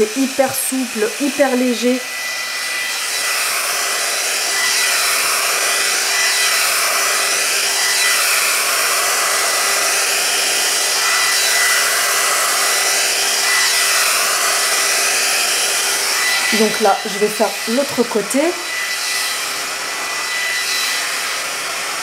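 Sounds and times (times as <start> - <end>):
hair tool fan blowing air: 0.0 - 22.0.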